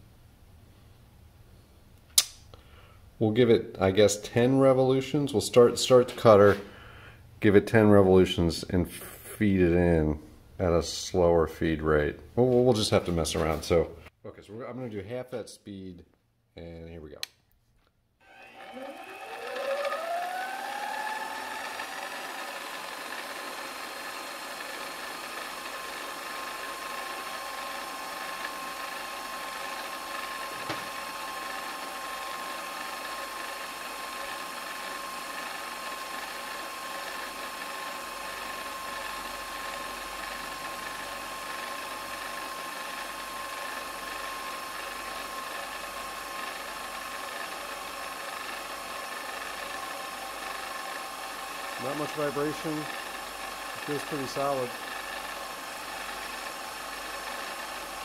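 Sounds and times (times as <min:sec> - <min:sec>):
end mill cutting plastic rod: 0:18.2 - 0:58.0
milling machine spindle running: 0:18.2 - 0:58.0.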